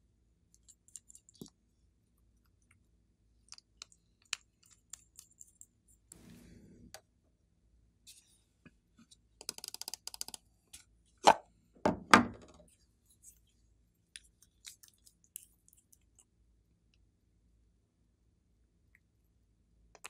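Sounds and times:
small clicks of objects handled: 9.0 - 10.9.

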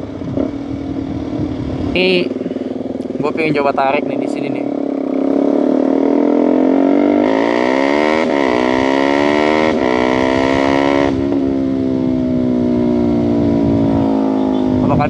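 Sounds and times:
wind noise: 0.0 - 4.2, 7.3 - 15.0
motorcycle engine accelerating: 0.0 - 15.0.

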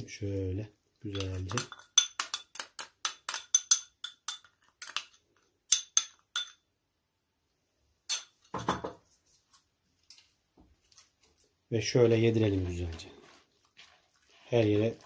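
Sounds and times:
metal spoon clinking ceramic bowl: 1.1 - 6.6, 8.1 - 8.4.

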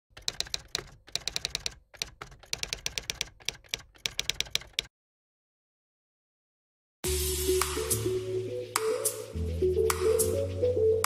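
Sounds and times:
typewriter key clicks: 0.1 - 4.9.

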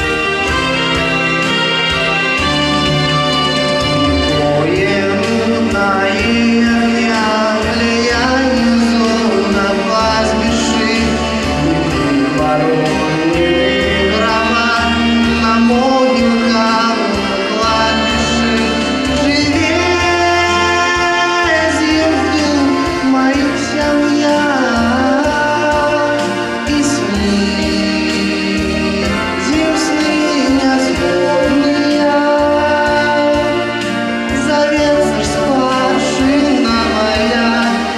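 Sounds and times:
song with sung melody: 0.0 - 37.9
sustained low accompaniment: 1.0 - 7.1.

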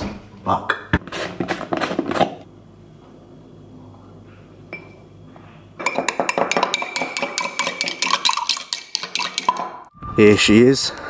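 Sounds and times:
spoon clinking in glass: 5.8 - 9.7.

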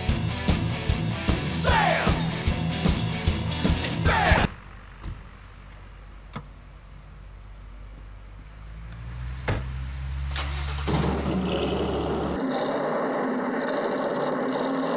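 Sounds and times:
car engine running: 0.0 - 12.4
car doors shutting: 9.4 - 12.3.

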